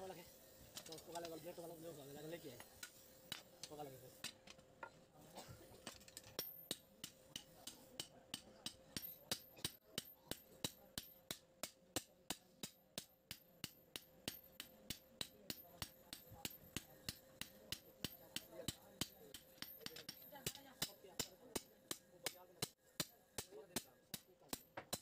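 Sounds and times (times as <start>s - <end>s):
hammer striking metal on anvil: 5.8s - 25.0s.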